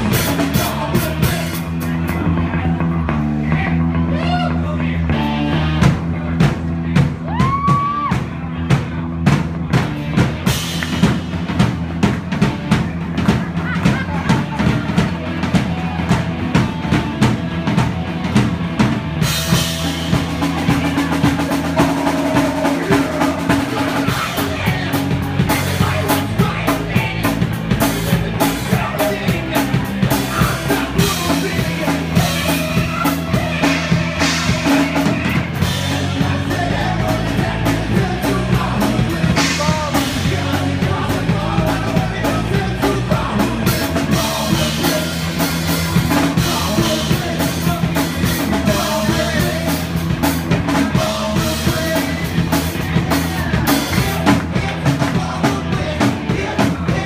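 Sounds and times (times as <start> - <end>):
drum kit beat: 0.0 - 57.0
electric guitar: 0.0 - 57.0
person singing into a microphone: 20.4 - 57.0.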